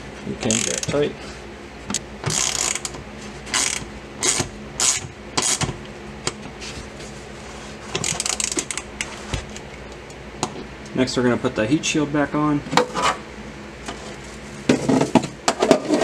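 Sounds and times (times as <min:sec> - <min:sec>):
hand ratchet clicking: 0:00.5 - 0:01.0, 0:02.3 - 0:02.9, 0:03.5 - 0:05.7.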